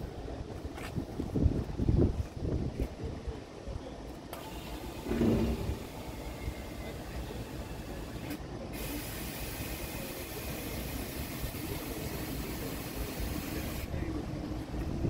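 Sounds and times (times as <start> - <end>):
steady hiss: 4.4 - 14.1.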